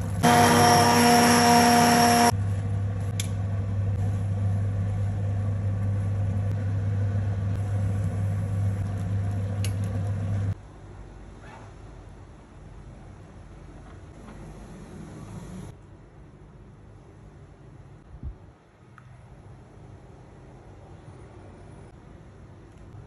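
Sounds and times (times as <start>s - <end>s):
low mechanical hum: 0.0s - 23.0s
stick blender motor whining: 0.2s - 2.3s.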